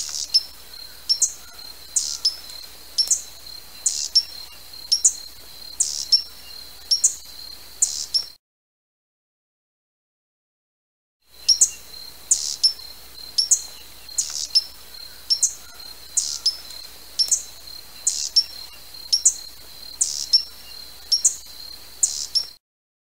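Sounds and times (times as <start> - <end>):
hummingbird chip calls: 0.0 - 8.4, 11.3 - 22.6.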